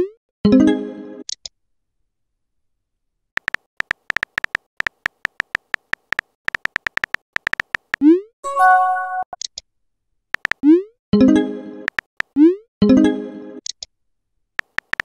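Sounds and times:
phone keyboard typing clicks: 0:03.4 - 0:08.0, 0:10.4 - 0:10.6, 0:11.9 - 0:12.3, 0:14.6 - 0:15.0.

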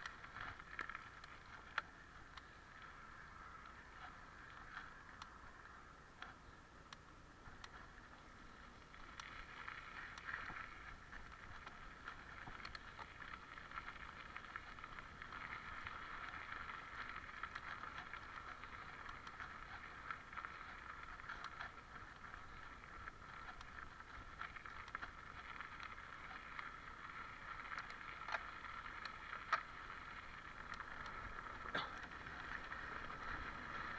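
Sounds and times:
bike clicks and rattles: 0:00.0 - 0:33.9
bike tyres on gravel: 0:00.0 - 0:33.9.

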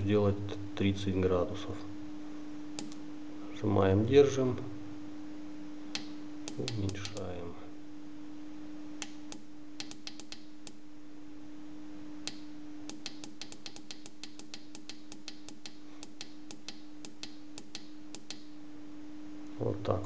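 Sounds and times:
steady low hum: 0:00.0 - 0:20.0
thermostat buttons clicking: 0:06.0 - 0:07.3, 0:09.0 - 0:10.8, 0:12.3 - 0:18.5.

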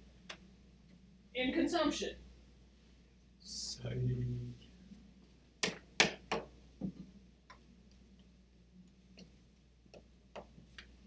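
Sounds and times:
low hum: 0:02.3 - 0:05.2
faint clicks and taps: 0:06.8 - 0:11.0.

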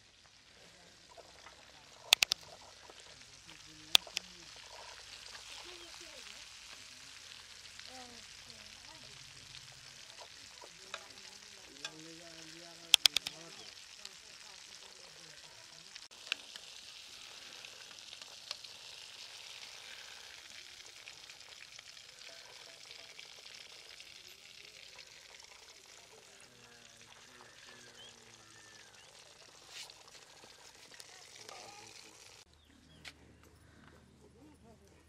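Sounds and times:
chicken sizzling in oil: 0:00.0 - 0:32.5
sharp clicks: 0:02.0 - 0:02.4, 0:04.0 - 0:04.3, 0:12.9 - 0:13.6.

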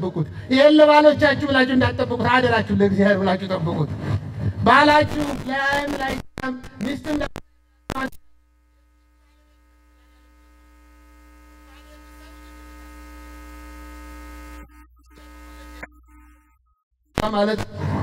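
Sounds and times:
electrical mains hum: 0:04.6 - 0:16.6.

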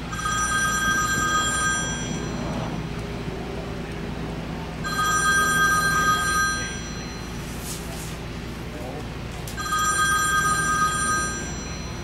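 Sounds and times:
telephone ringing: 0:00.0 - 0:02.8, 0:04.8 - 0:07.5, 0:09.6 - 0:12.0
low steady hum: 0:00.0 - 0:12.0.

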